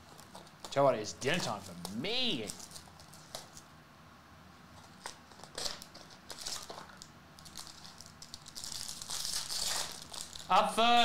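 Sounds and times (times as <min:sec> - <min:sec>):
foil and cardboard crinkling: 0:01.3 - 0:03.6, 0:04.9 - 0:11.0.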